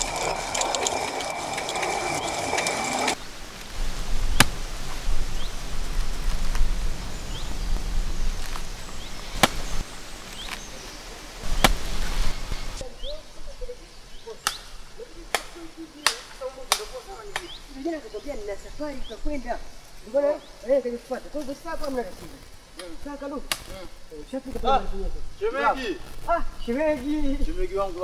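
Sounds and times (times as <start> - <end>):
machete chopping coconut husk: 4.4 - 4.6, 9.2 - 9.8, 11.4 - 12.1.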